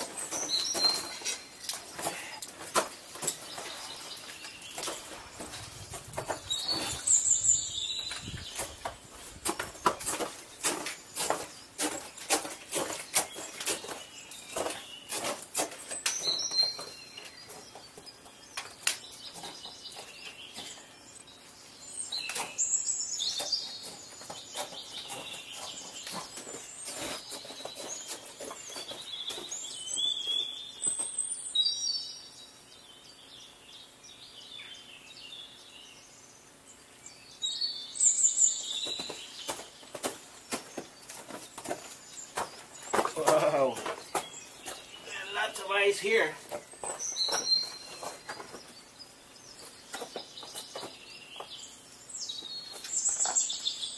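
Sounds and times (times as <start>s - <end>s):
footsteps on ice and rock: 0.0s - 7.2s, 7.9s - 18.0s, 23.4s - 31.1s, 38.7s - 51.6s
small birds chirping: 0.0s - 53.9s.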